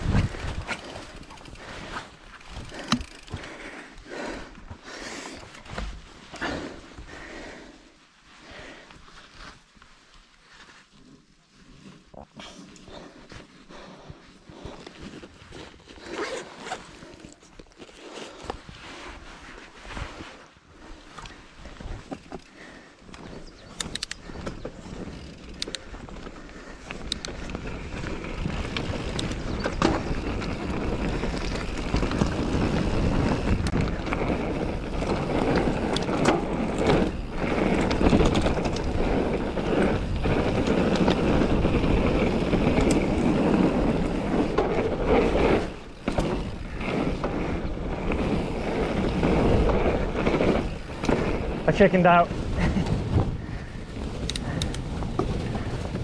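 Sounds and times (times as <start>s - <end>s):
wind buffeting microphone: 0.0s - 3.5s, 23.2s - 56.0s
bike rattling and clicking: 0.0s - 7.8s, 8.7s - 18.8s, 20.2s - 56.0s
tyres rolling on dirt: 0.0s - 7.8s, 11.8s - 56.0s.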